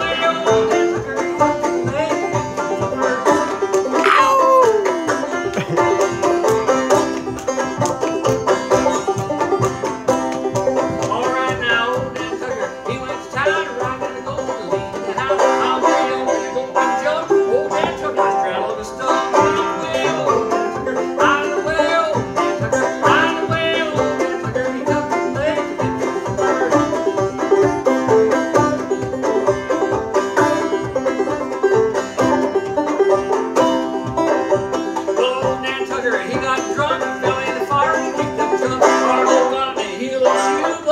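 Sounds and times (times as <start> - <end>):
banjo picking: 0.0 - 40.9.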